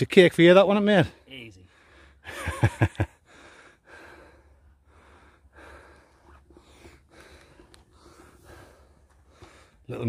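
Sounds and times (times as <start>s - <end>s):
person breathing hard: 1.6s - 2.3s, 3.2s - 9.9s.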